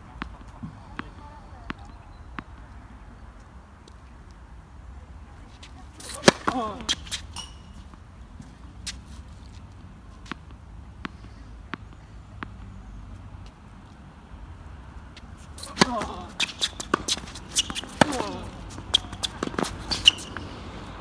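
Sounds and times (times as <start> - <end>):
tennis ball bouncing: 0.2 - 2.8, 5.6 - 13.6, 15.2 - 20.8
racket striking tennis ball: 6.0 - 8.0, 15.5 - 20.6.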